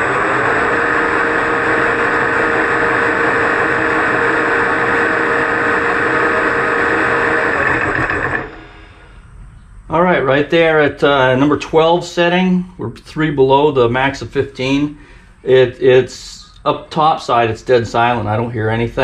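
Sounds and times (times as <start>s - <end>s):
lathe motor running: 0.0s - 9.4s.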